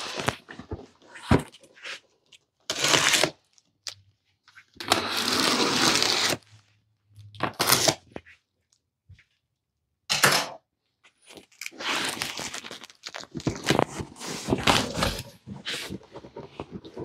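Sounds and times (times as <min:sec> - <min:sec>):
knife slitting packing tape: 0:02.7 - 0:03.4, 0:04.9 - 0:06.4, 0:07.5 - 0:08.0.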